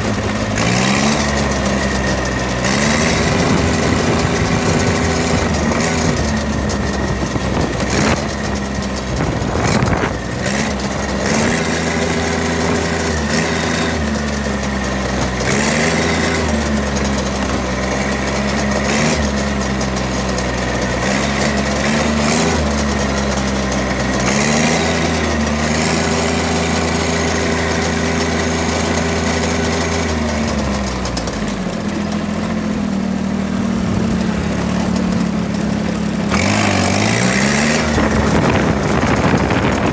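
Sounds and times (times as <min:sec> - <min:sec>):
riding lawn mower engine running: 0:00.0 - 0:39.9.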